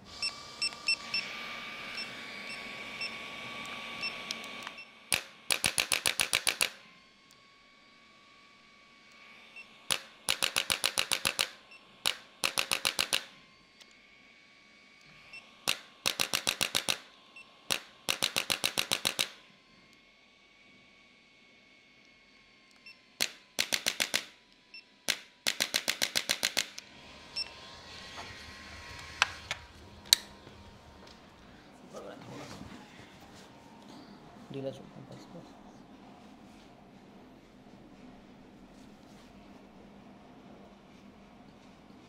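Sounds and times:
electric adjusting instrument clicking: 3.6s - 7.4s, 9.9s - 14.0s, 15.6s - 20.0s, 28.2s - 31.2s.

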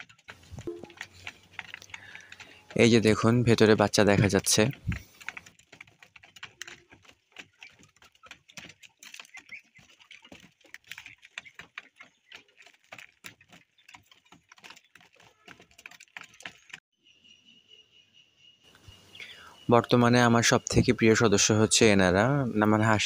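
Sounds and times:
pigeons pecking on metal roof: 0.0s - 16.8s.

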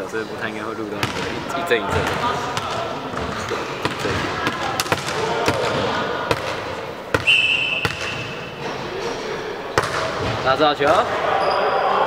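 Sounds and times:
volleyball bouncing on gym floor: 1.0s - 8.6s, 9.7s - 11.2s.

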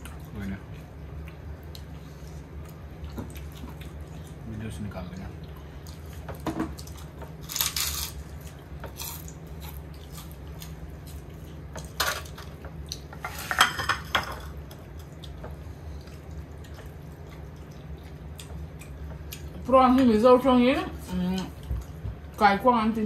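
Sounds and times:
steady low hum: 0.0s - 23.0s
cutlery clinking and scraping on plates: 13.2s - 14.5s.

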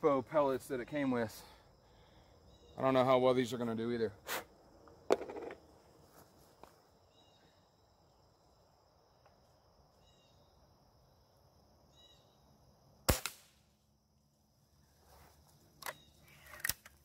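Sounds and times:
air rifle shot: 13.1s - 13.6s.

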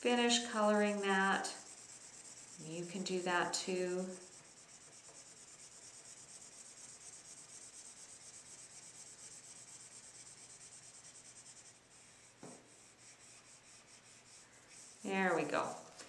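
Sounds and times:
marker scratching on card: 0.3s - 15.9s
soft knock: 12.4s - 12.7s.

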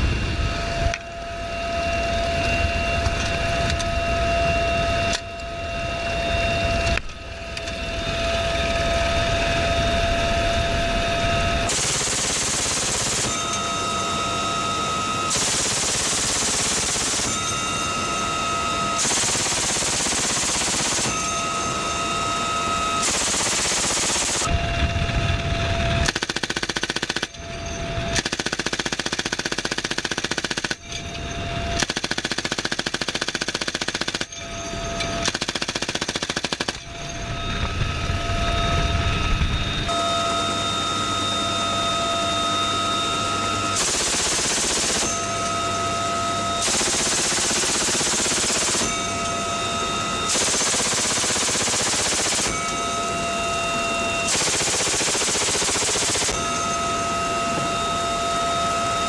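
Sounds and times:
helicopter rotor noise: 0.0s - 59.0s
helicopter turbine whine: 0.0s - 59.0s
machine gun firing bursts: 11.7s - 21.5s, 22.9s - 24.6s, 25.9s - 27.4s, 28.1s - 30.9s, 31.7s - 34.4s, 35.2s - 36.8s, 43.8s - 45.4s, 46.5s - 49.4s, 50.3s - 53.0s, 54.2s - 56.6s.

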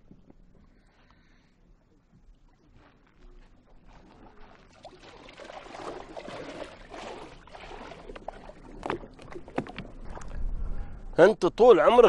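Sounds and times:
seawater splashing around boats: 2.2s - 10.4s.

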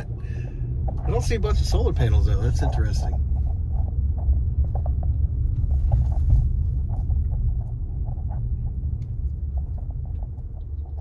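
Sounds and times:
car rumbling on rough road: 0.0s - 11.0s
small clicks and rattles: 2.4s - 11.0s.

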